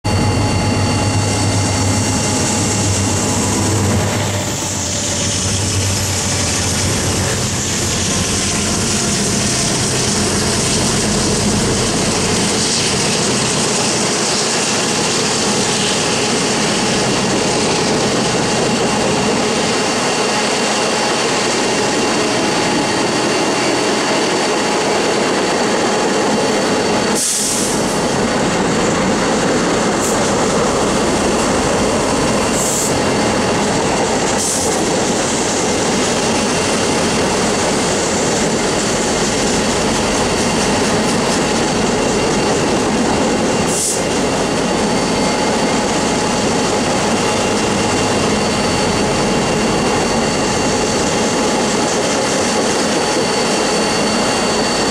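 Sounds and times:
diesel locomotive engine hum: 0:00.0 - 0:54.9.

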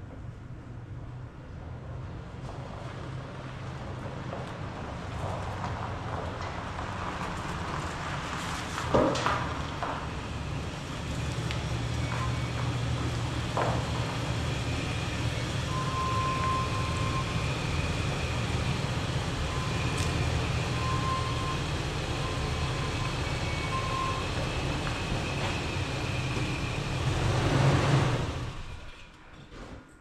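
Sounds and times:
truck engine low hum: 0:00.0 - 0:29.2.

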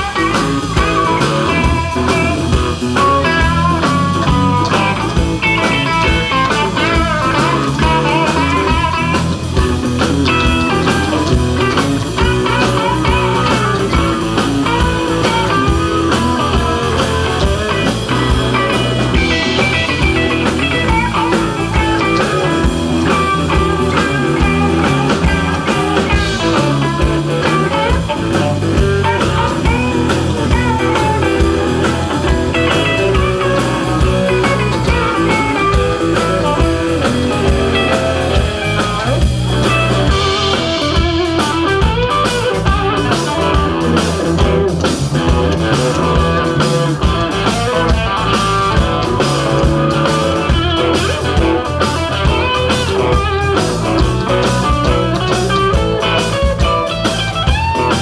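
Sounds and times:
bass guitar: 0:00.0 - 0:58.0
drums: 0:00.0 - 0:58.0
electric guitars: 0:00.0 - 0:58.0.

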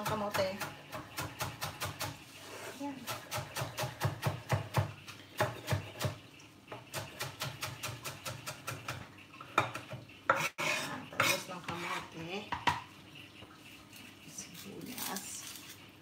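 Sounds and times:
knife scraping cutting board: 0:02.0 - 0:03.3, 0:09.8 - 0:12.2
knife chopping on wooden board: 0:03.0 - 0:06.2.

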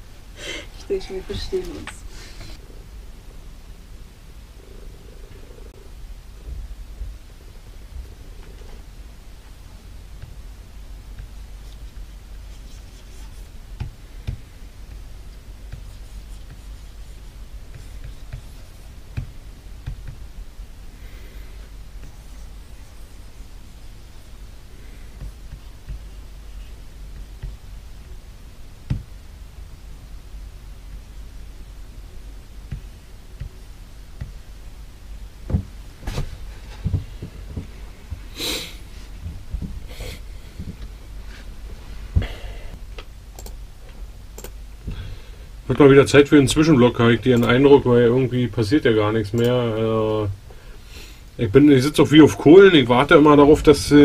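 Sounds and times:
steady low hum: 0:00.0 - 0:54.0
dull low thumps and knocks: 0:06.4 - 0:07.3, 0:17.6 - 0:20.4, 0:27.1 - 0:27.6, 0:28.8 - 0:29.2, 0:35.4 - 0:38.3, 0:39.2 - 0:39.9
pen writing and tapping on desk: 0:15.7 - 0:17.0, 0:17.7 - 0:20.2.

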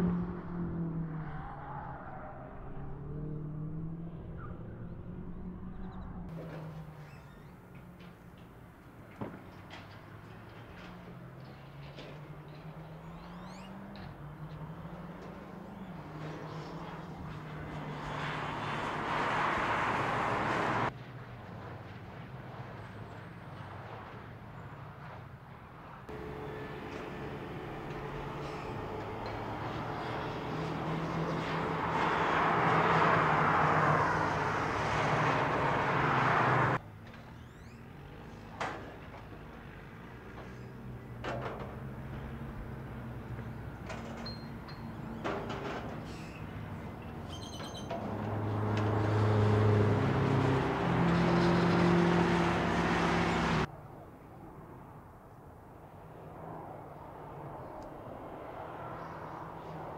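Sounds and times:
car engine at speed: 0:00.0 - 0:06.9, 0:11.6 - 0:21.0, 0:26.1 - 0:44.2, 0:48.0 - 0:53.7
rushing noise of passing car: 0:09.2 - 0:59.9
car engine running: 0:26.1 - 0:30.4.

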